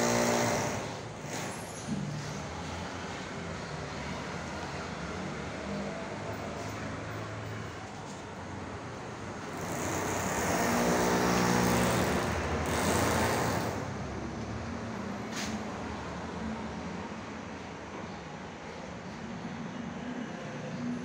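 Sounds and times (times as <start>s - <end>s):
vehicle engine: 0.0s - 15.6s.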